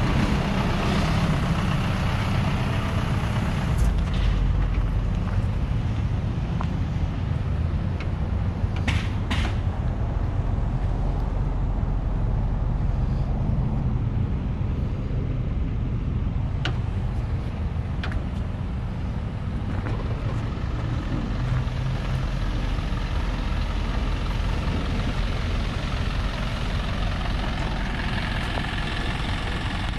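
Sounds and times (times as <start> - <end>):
diesel truck engine idling: 0.0 - 29.9.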